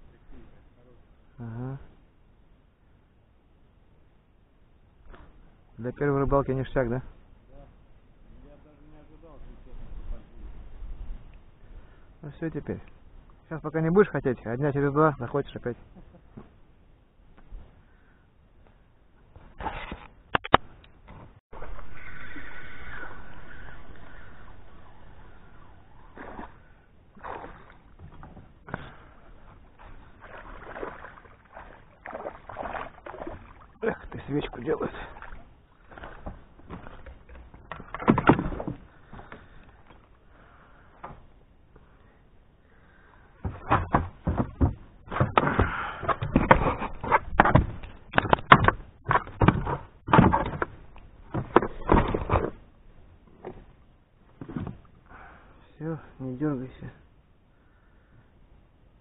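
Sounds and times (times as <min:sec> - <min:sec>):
fish thrashing water splashing: 0:27.2 - 0:28.0, 0:29.8 - 0:33.8.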